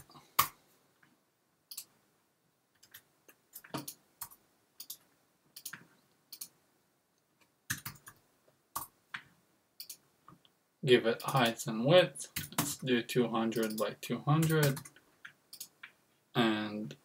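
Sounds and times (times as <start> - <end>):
computer mouse clicking: 1.7 - 2.0, 2.8 - 6.6, 7.4 - 8.2, 8.8 - 10.5, 13.6 - 16.0.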